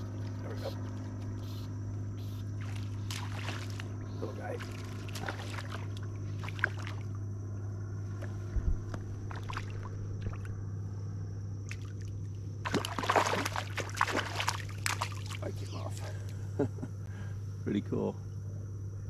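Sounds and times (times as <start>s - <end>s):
steady low hum: 0.0s - 19.0s
fish splashing at water surface: 2.6s - 7.1s, 9.2s - 10.5s, 11.6s - 15.5s.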